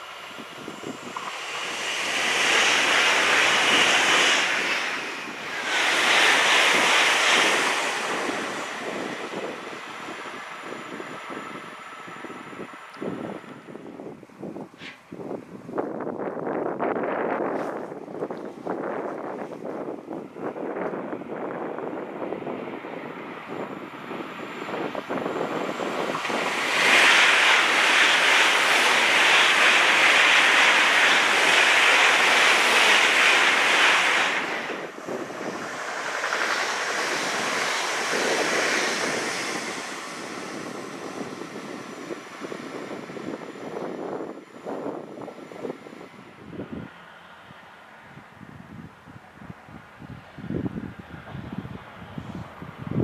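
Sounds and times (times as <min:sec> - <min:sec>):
train passing at speed: 0:00.0 - 0:53.0
fainter rushing: 0:24.0 - 0:43.3.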